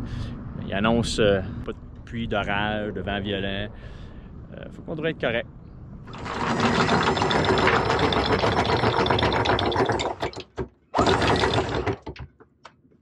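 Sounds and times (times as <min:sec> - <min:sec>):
chain clanks: 0:06.1 - 0:12.2
anchor chain rattling: 0:06.1 - 0:12.3
anchor windlass motor whirring: 0:06.1 - 0:12.3.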